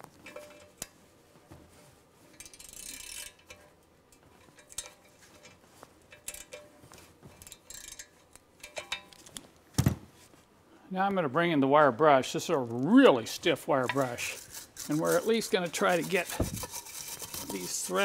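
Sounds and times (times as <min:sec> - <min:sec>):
ratchet wrench clicking: 0:02.4 - 0:03.6, 0:07.4 - 0:08.9.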